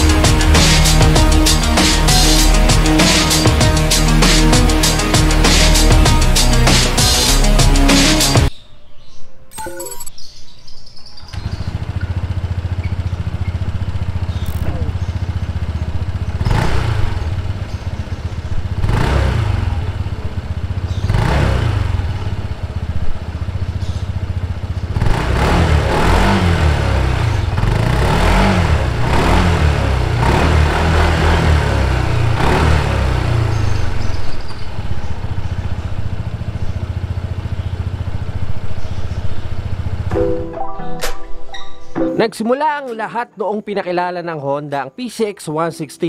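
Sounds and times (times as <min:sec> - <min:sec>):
scooter engine idling and revving: 0:00.0 - 0:08.5, 0:11.0 - 0:40.2.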